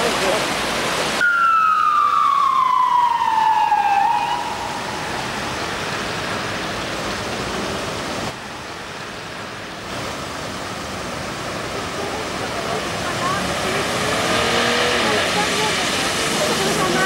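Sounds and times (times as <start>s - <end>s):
vehicles splashing through water: 0.0s - 17.0s
siren wailing: 1.2s - 5.7s.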